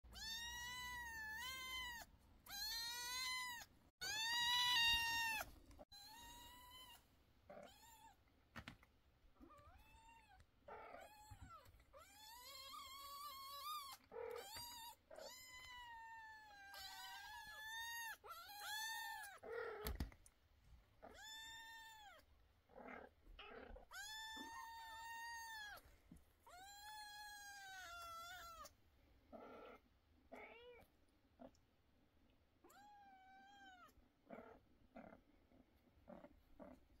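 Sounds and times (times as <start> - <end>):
kittens meowing: 0.1 - 8.2, 9.4 - 20.0, 23.4 - 25.8, 26.4 - 28.7.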